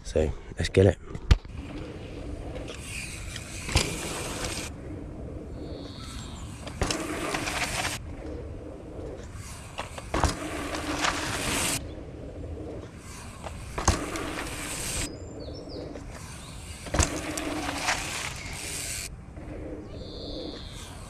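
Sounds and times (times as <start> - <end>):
bike tyres on packed dirt: 1.4 - 21.0.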